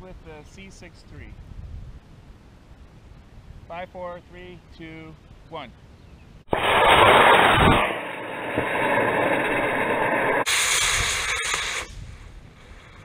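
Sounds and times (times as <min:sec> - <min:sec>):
rocket motor hiss: 0:06.5 - 0:13.0.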